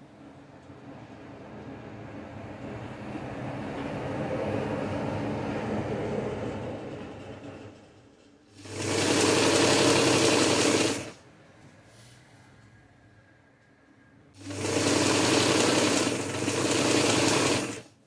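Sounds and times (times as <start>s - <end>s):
electric sewing machine stitching: 8.6s - 11.2s, 14.4s - 18.0s.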